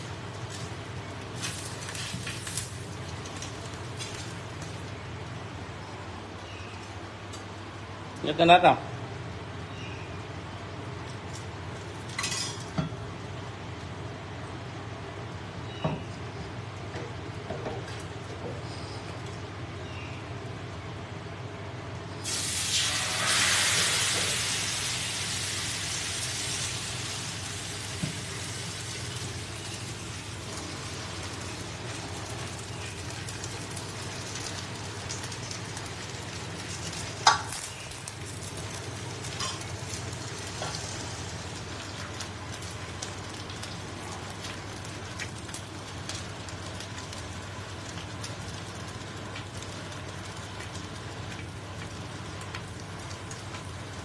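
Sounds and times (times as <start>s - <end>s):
batter sizzling in hot pan: 0.0s - 5.1s, 22.2s - 54.0s.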